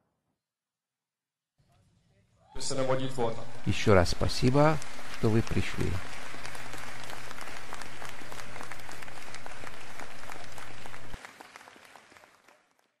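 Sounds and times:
audience applauding: 2.6s - 13.0s.

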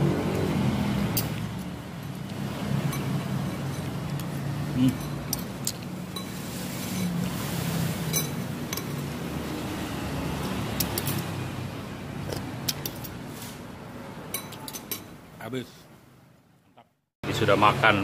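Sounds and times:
cutlery clinking on ceramic bowl: 2.8s - 4.3s, 8.1s - 9.0s, 10.8s - 11.3s, 14.3s - 15.1s.

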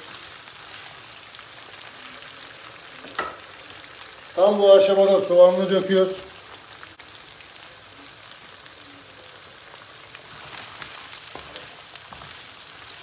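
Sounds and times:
food sizzling in hot oil: 0.0s - 13.0s
wooden spoon scraping a pan: 10.2s - 13.0s.

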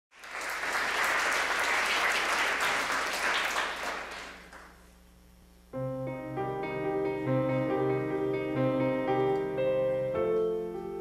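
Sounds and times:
audience applauding: 0.1s - 4.8s
grand piano chords: 5.7s - 11.0s.

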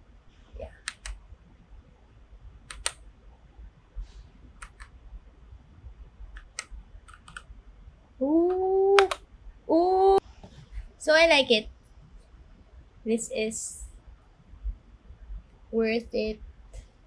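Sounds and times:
mechanical keyboard key clicks: 2.7s - 3.0s.

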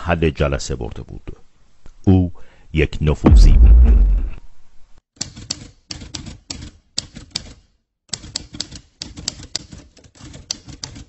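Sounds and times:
typewriter keys striking: 5.2s - 11.0s.

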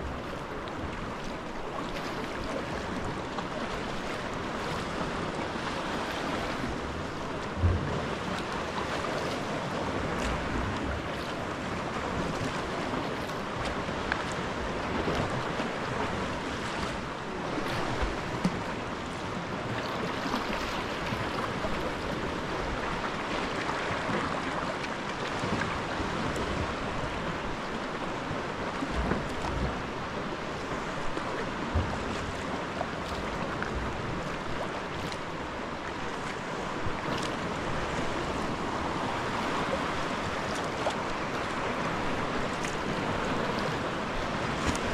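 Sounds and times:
waves washing against rocks: 0.0s - 44.9s
wind buffeting microphone: 6.2s - 18.7s.

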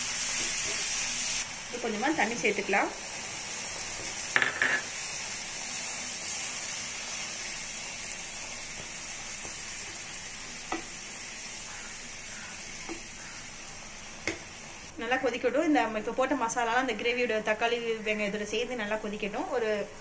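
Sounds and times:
gravy sizzling in frying pan: 0.0s - 15.0s
spatula knocking on pan: 12.8s - 13.3s.

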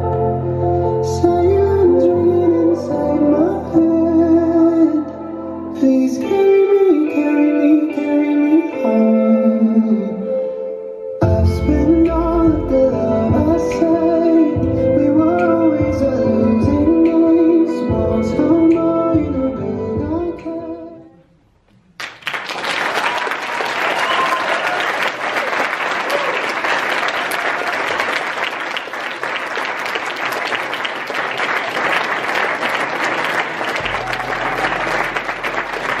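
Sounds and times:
performance music: 0.0s - 36.0s
audience applause: 22.0s - 36.0s.

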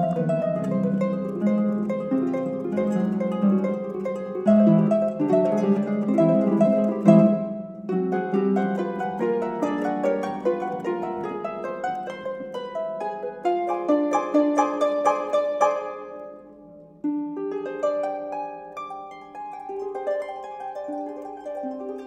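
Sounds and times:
harps playing: 0.0s - 22.0s.

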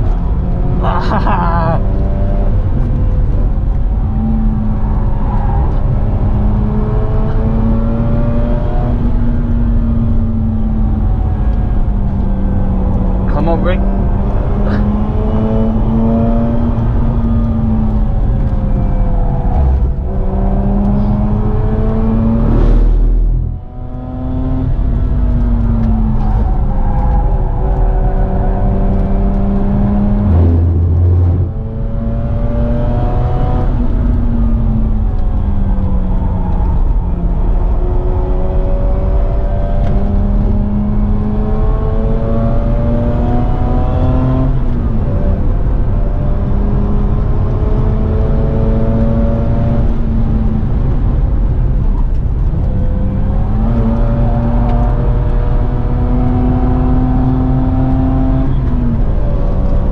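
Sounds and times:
road and tyre noise: 0.0s - 59.9s
rotary engine revving: 19.0s - 35.4s.

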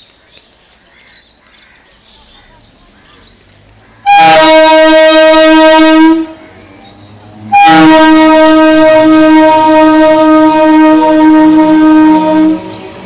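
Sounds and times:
train horn blasts: 4.0s - 6.4s, 7.4s - 13.0s.

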